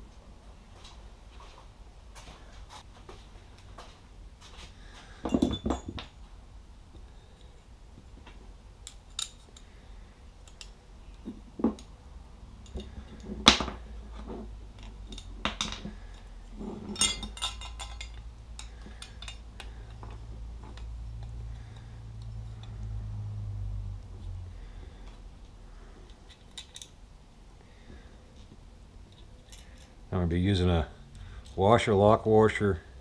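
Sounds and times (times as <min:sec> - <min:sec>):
metal parts clinking on wood: 0:05.2 - 0:06.2, 0:14.8 - 0:20.8, 0:26.1 - 0:27.0.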